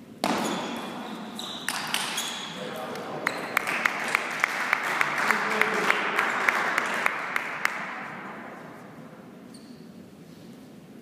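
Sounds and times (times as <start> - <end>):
person clapping steadily: 3.2 - 8.0
spectators applauding: 3.2 - 8.2.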